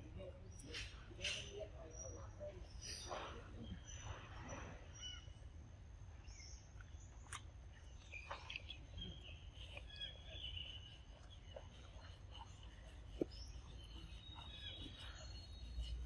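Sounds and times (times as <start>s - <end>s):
faint high chirps: 8.0s - 16.0s.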